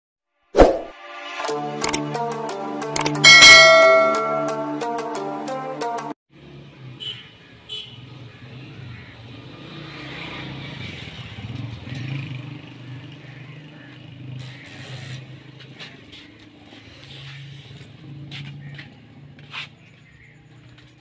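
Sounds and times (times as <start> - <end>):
vehicle engine running: 11.4 - 21.0.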